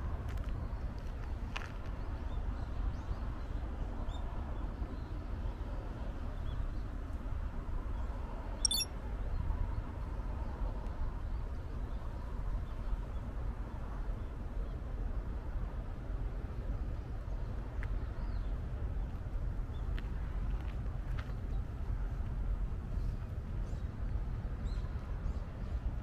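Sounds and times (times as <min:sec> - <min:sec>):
bird chirps: 0:08.6 - 0:08.9
sharp rattle: 0:08.7 - 0:08.9.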